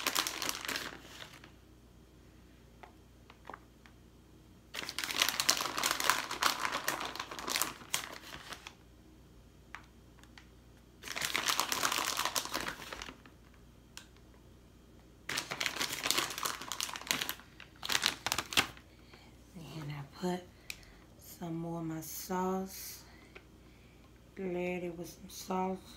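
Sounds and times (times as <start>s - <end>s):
plastic bag crinkling: 0.0s - 1.6s, 4.7s - 8.8s, 10.2s - 13.6s, 15.3s - 19.3s.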